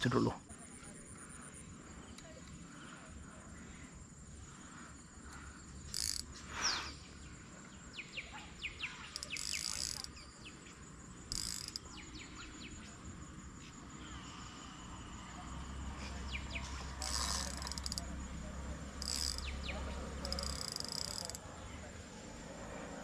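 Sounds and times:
insects chirping: 0.0 - 23.0.

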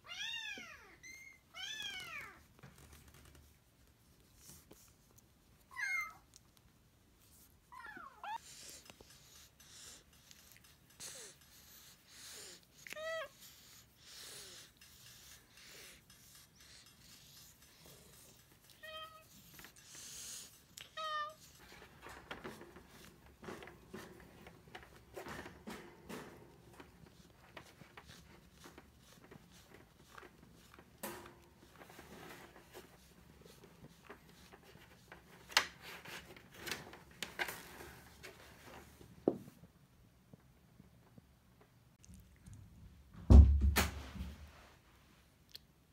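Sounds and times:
brush rubbing through cat fur: 2.0 - 5.6, 7.2 - 39.0
cat breathing noisily: 8.4 - 18.6, 19.3 - 20.8.

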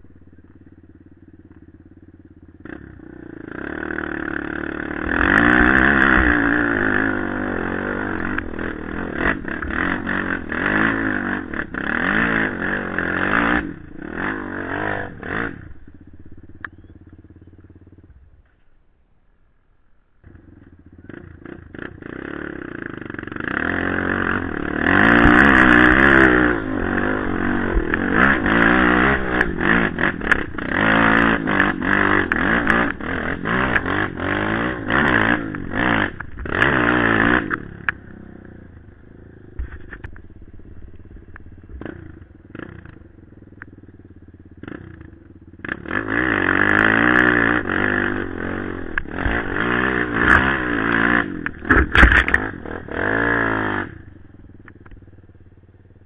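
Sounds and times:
quad engine revving: 0.0 - 18.2, 20.2 - 56.0.

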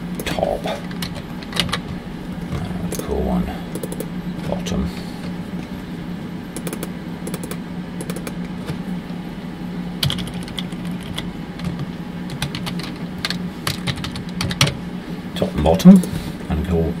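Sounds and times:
keyboard keys clicking: 6.6 - 8.4, 10.0 - 14.8.

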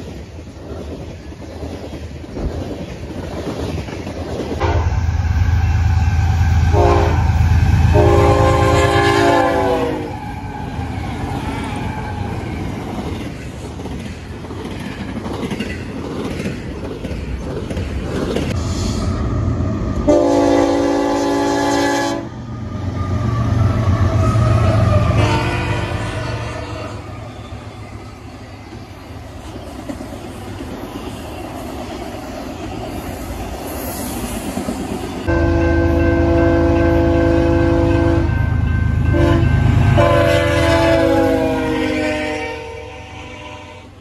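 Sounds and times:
train wheels rolling on rails: 0.0 - 44.0
locomotive air horn: 4.6 - 5.0, 6.6 - 10.2, 20.1 - 22.4, 24.2 - 27.1, 35.3 - 38.4, 39.1 - 44.0.

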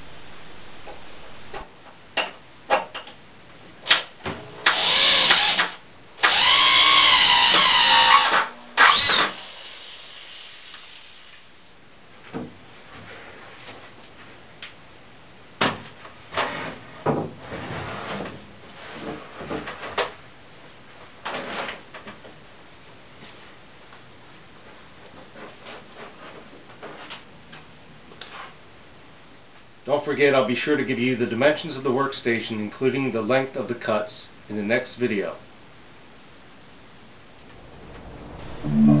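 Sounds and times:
power drill whirring: 4.7 - 10.3.

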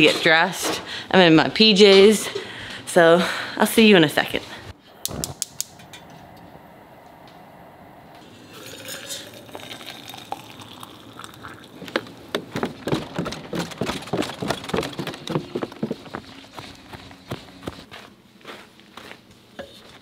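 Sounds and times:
water poured into mug: 8.3 - 11.8
footsteps on wooden stairs: 12.0 - 19.2.

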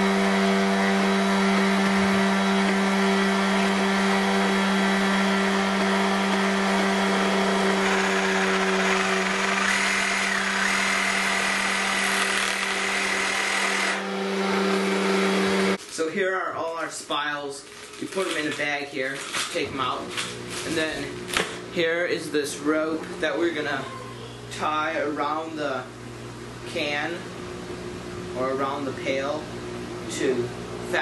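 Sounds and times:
reciprocating saw cutting tubing: 0.0 - 15.8.

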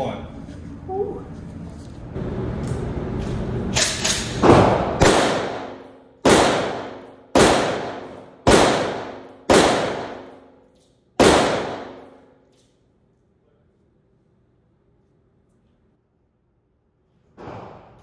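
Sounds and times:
rifle shots: 3.8 - 10.4, 11.2 - 12.2
gunshot echo indoors: 3.8 - 10.6, 11.2 - 12.4, 17.4 - 18.0.

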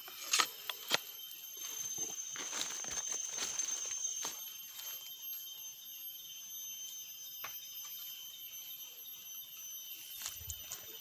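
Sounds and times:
footsteps in dry leaves: 0.0 - 5.2
forest insects droning: 0.0 - 11.0.

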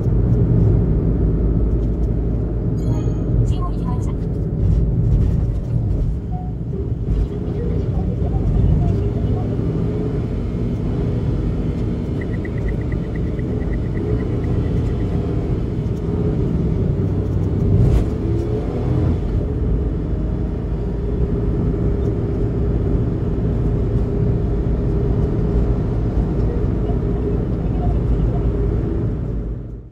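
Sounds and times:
road and engine rumble inside car: 0.0 - 29.9
rapid electronic beeping: 7.3 - 9.6, 12.0 - 15.4.

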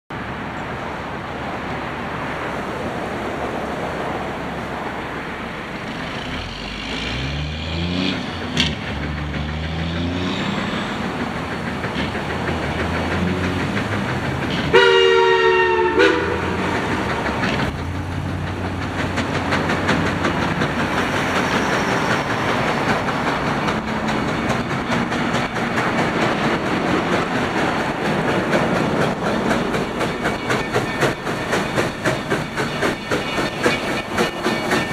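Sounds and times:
steam locomotive rushing steam: 0.2 - 34.9
locomotive exhaust puffs: 8.3 - 34.9.

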